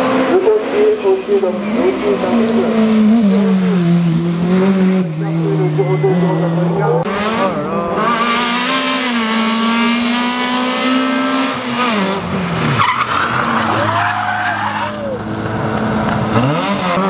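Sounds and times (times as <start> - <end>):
rally car engine at high revs: 0.0 - 17.0
tyres squealing and skidding: 11.6 - 17.0.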